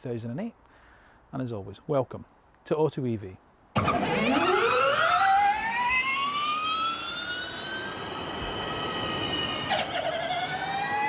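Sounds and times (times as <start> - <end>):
short synthesized hit: 3.8 - 5.2
rising electronic sweep: 3.8 - 11.0.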